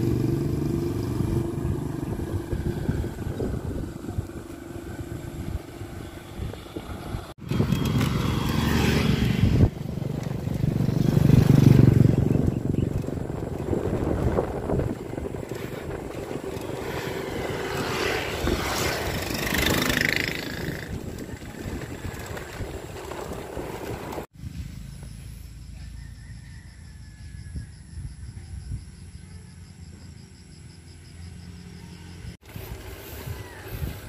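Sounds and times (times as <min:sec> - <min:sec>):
wind rushing over microphone: 0:00.0 - 0:24.8, 0:32.4 - 0:34.0
bike tyres on paved road: 0:00.0 - 0:28.2, 0:28.8 - 0:34.0.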